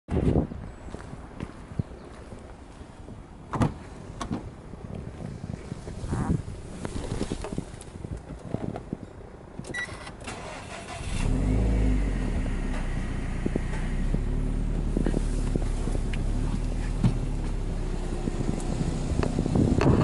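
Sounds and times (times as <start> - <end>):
car engine starting and rumbling: 9.5 - 20.0.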